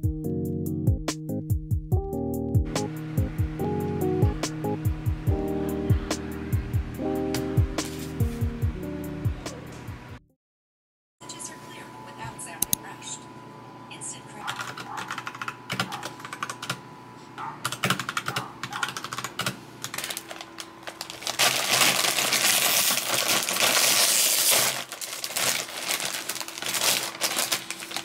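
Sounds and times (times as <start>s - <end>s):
mechanical keyboard typing: 14.5s - 16.8s, 17.6s - 20.4s
foil chip bag crinkling: 19.9s - 28.0s.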